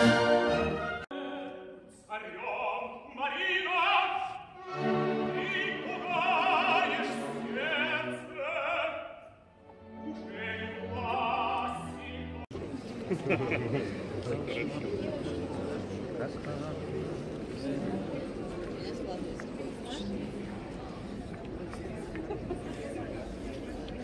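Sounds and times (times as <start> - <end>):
orchestra playing: 0.0 - 1.6, 3.7 - 12.5
opera singer singing: 1.1 - 12.5.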